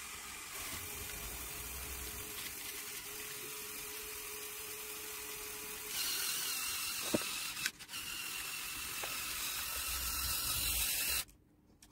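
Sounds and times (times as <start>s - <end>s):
electric motors whirring: 0.0s - 11.3s.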